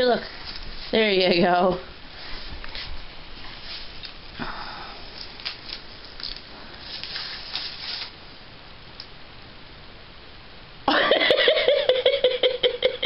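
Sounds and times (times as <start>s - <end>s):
paper rustling and crinkling: 5.1s - 8.2s.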